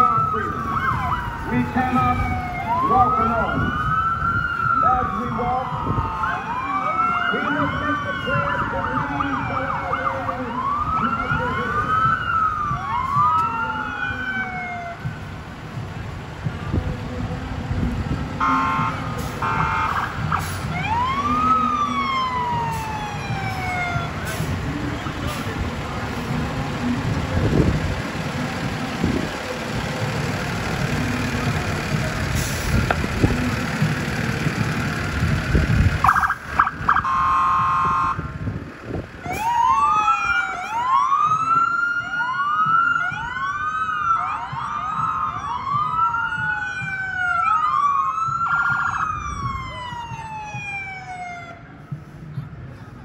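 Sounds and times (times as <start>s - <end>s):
vehicle horn blast: 18.4s - 20.0s, 37.0s - 38.2s
electronic siren wailing: 18.4s - 24.2s, 36.0s - 38.3s, 39.3s - 51.6s.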